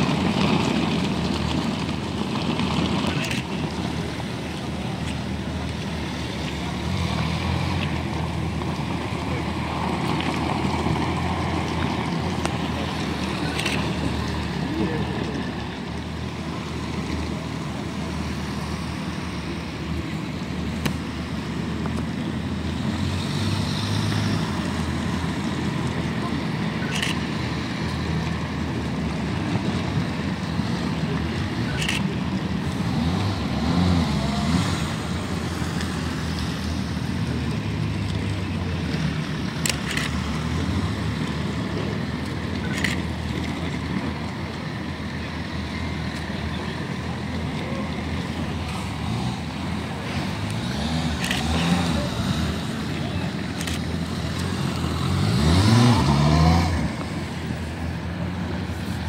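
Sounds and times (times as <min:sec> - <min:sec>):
sharp clicks: 0:39.6 - 0:40.3, 0:50.4 - 0:51.9, 0:53.5 - 0:54.9.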